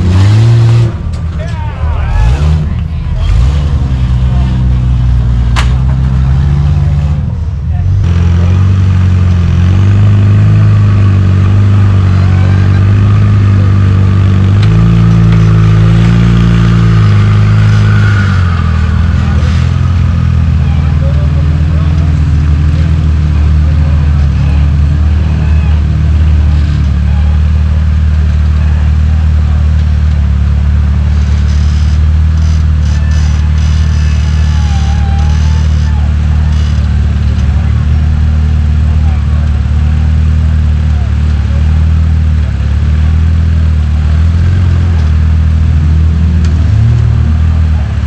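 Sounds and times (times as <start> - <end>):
buggy engine low drone: 0.0 - 48.0.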